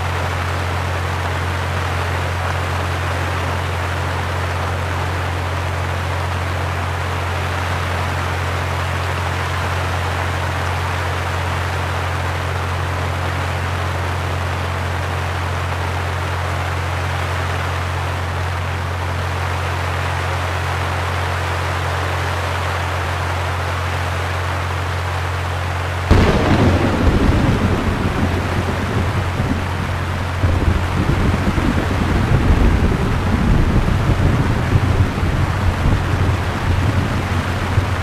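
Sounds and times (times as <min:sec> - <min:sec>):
low electrical hum: 0:00.0 - 0:38.0.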